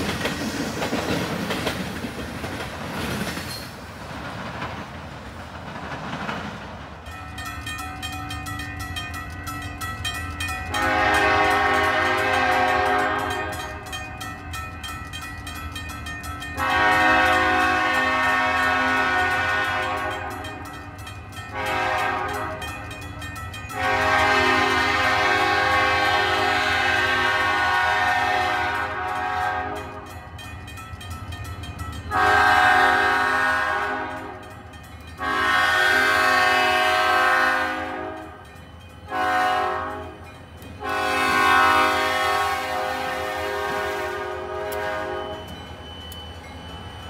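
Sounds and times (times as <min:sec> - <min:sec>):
low rumble of moving train: 0:00.0 - 0:47.0
locomotive air horn blasts: 0:10.7 - 0:13.8, 0:16.6 - 0:20.6, 0:21.5 - 0:22.8, 0:23.7 - 0:30.1, 0:32.1 - 0:34.5, 0:35.2 - 0:38.4, 0:39.1 - 0:45.5.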